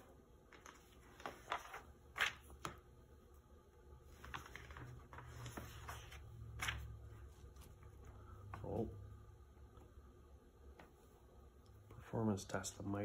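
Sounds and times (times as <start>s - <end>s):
magazine pages turning: 0.0s - 2.9s, 4.0s - 8.2s.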